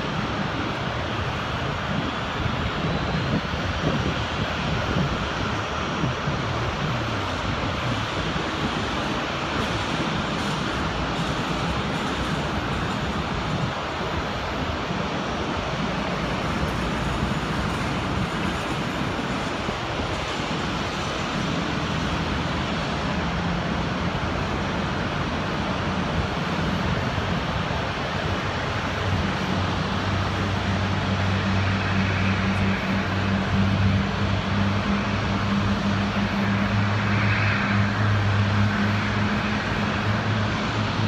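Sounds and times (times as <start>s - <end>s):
aircraft engines rumbling: 0.0s - 41.0s
low droning hum: 29.0s - 41.0s.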